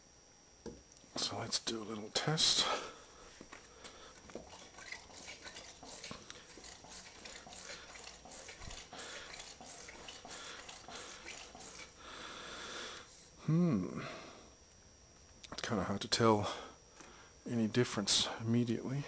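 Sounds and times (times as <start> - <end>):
fork oil swishing and hissing: 4.3 - 12.0.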